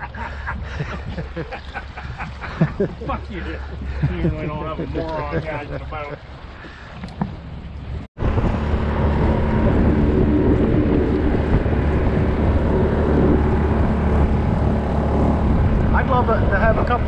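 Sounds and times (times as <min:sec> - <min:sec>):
wind on microphone: 0:00.0 - 0:05.0, 0:06.4 - 0:17.0
water rushing along hull: 0:00.0 - 0:17.0
outboard motor running: 0:06.6 - 0:17.0.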